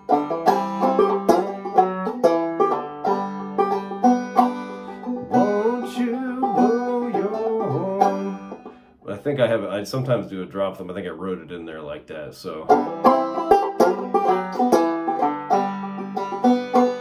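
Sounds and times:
banjo plucked notes: 0:00.0 - 0:17.0.

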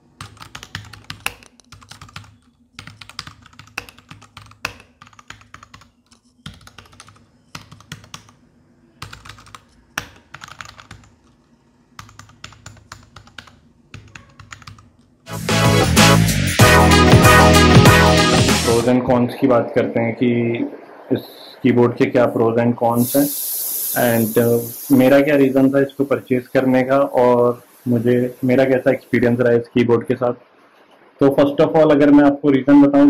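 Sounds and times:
mechanical keyboard clicks: 0:09.0 - 0:11.4
loud music: 0:15.3 - 0:19.1.

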